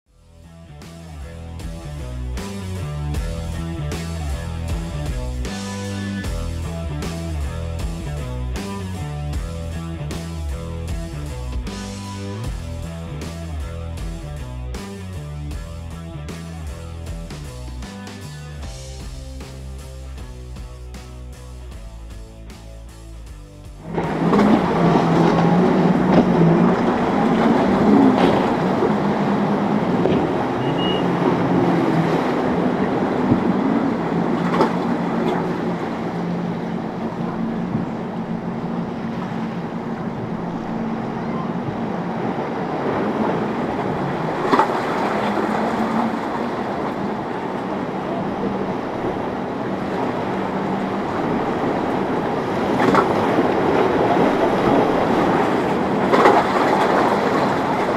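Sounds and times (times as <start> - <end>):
outboard motors humming: 0.1 - 57.9
wake and spray rushing: 23.8 - 57.9.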